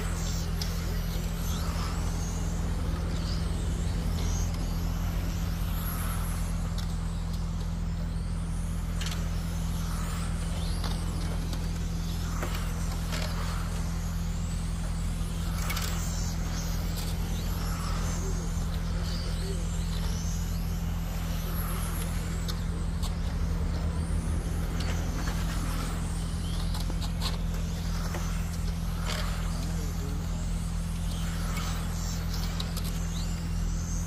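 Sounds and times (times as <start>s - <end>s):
rc car motors whining: 0.0s - 34.0s
steady low hum: 0.0s - 34.0s.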